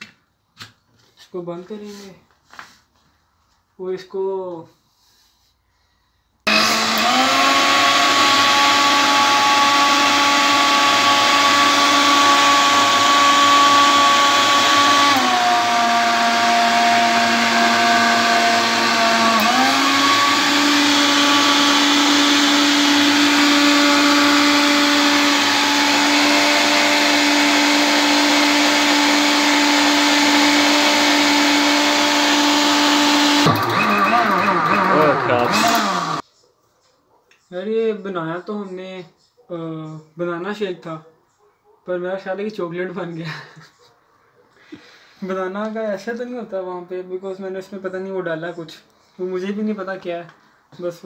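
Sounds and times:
blender motor running: 6.5 - 36.2.

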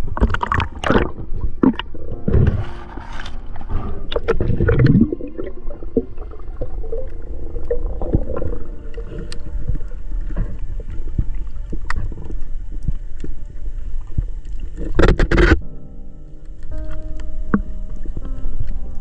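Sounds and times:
underwater knocks and clicks: 0.0 - 2.8, 3.6 - 15.6
muffled underwater water gurgling: 0.0 - 19.0.

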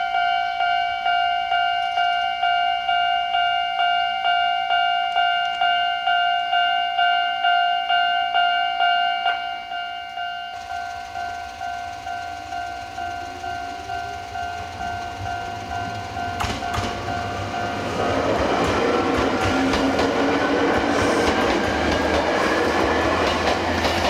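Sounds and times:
level-crossing alarm bell: 0.0 - 24.0
train wheels clicking on rail joints: 10.0 - 24.0.

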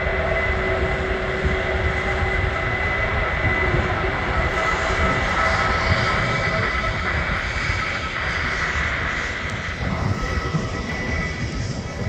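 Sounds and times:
jet engines whining and rumbling: 0.0 - 12.0.

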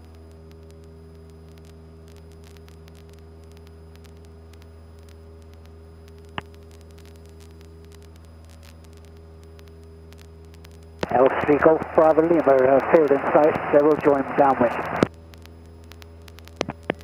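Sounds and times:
airplane engine droning: 3.0 - 15.2.

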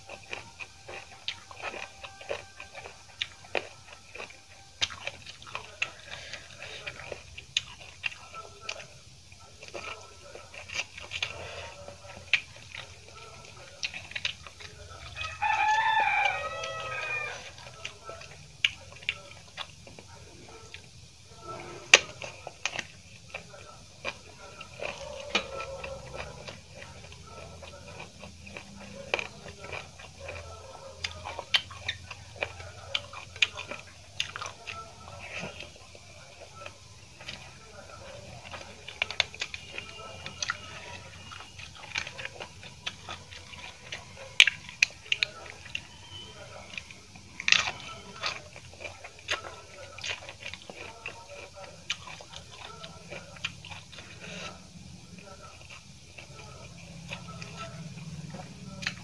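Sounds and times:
chewing: 0.0 - 59.0
crunch of chili being bitten: 0.0 - 59.0
fingers squishing food: 0.0 - 59.0
rooster crowing: 14.9 - 18.3, 24.7 - 27.8.

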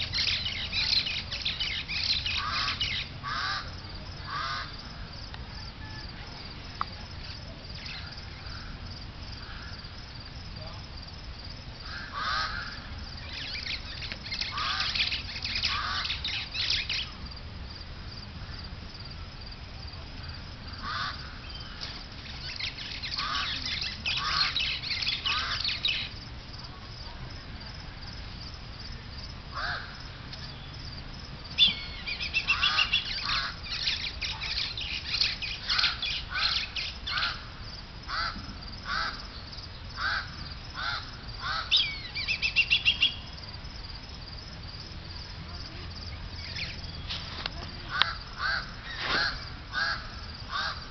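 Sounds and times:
birds calling: 0.0 - 6.1, 11.8 - 17.2, 20.8 - 26.2, 31.6 - 43.4, 46.1 - 50.9.

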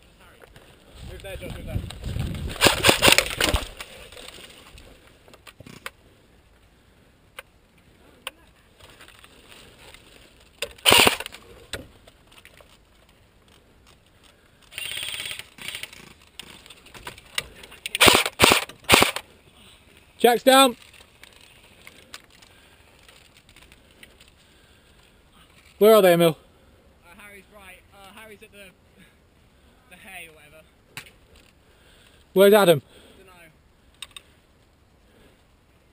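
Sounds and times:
airsoft rifle full-auto bursts: 2.6 - 3.7, 10.8 - 11.3, 14.7 - 15.8, 18.0 - 19.2.

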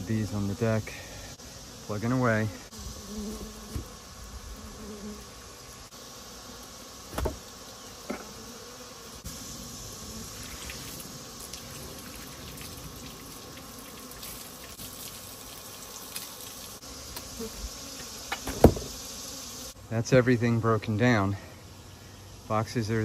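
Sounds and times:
bees buzzing: 0.0 - 23.0
tool knocking on wooden box: 7.1 - 7.4, 18.4 - 18.9
water pouring and splashing: 10.3 - 16.8.

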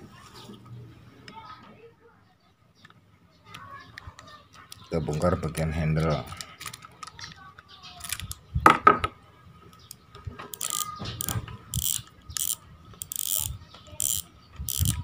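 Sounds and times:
reel drag clicker ratcheting: 8.0 - 8.4, 10.5 - 15.0.

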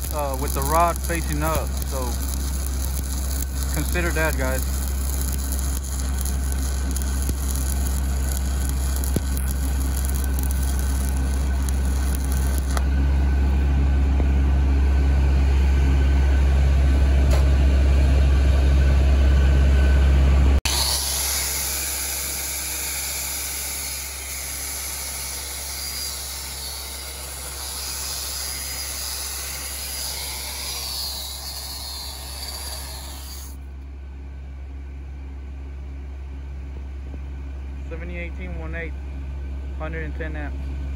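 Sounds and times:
welding arc crackling and hissing: 0.0 - 12.9, 20.6 - 33.6
low engine drone: 0.0 - 21.1.

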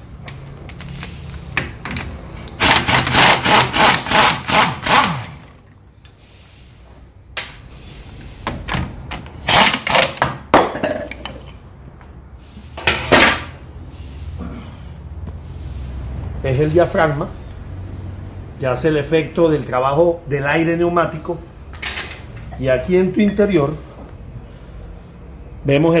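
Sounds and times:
pneumatic impact wrench hammering: 2.4 - 5.8, 8.4 - 11.3.

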